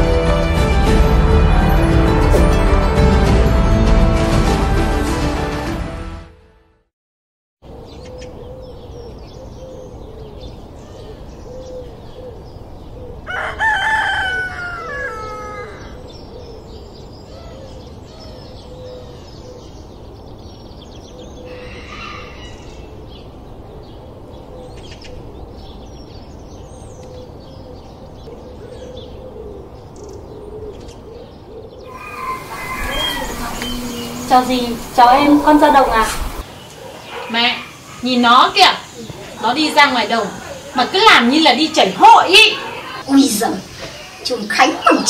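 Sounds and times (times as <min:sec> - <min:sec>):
small birds chirping: 0:07.8 - 0:13.3, 0:14.5 - 0:45.0
rooster crowing: 0:13.2 - 0:16.0, 0:21.4 - 0:23.0, 0:31.8 - 0:36.4
background hiss: 0:32.0 - 0:45.0.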